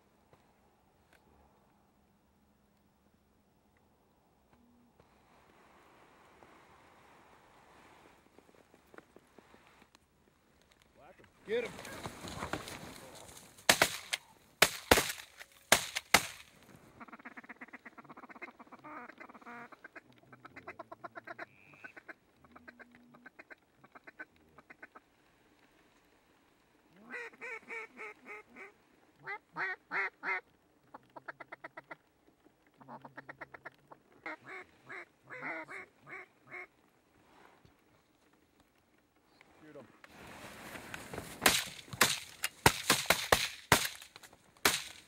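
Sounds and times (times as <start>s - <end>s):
shotgun blasts: 13.7s - 16.4s.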